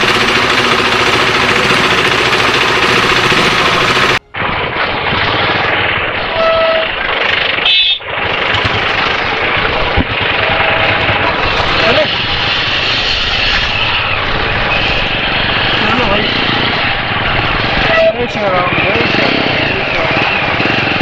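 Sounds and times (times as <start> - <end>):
motorcycle engine rumble: 0.0 - 21.0
wind and rain buffeting microphone: 4.2 - 20.7.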